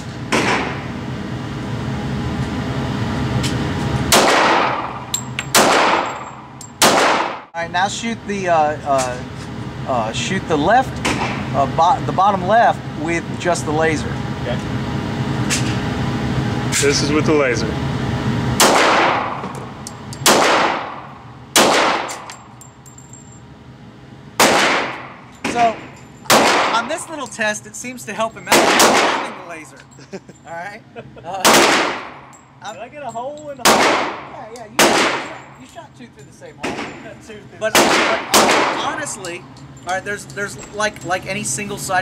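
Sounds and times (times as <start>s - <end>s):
pistol shots echoing indoors: 4.1s - 7.5s, 18.6s - 19.4s, 20.2s - 22.3s, 24.4s - 25.2s, 26.3s - 26.8s, 28.5s - 29.3s, 31.4s - 32.2s, 33.6s - 34.2s, 34.8s - 35.4s, 37.7s - 38.8s.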